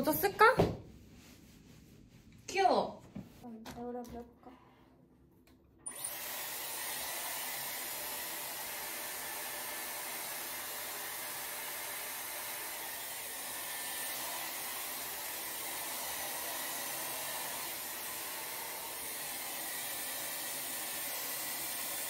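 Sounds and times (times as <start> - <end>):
hair styler blowing air: 5.9 - 22.0.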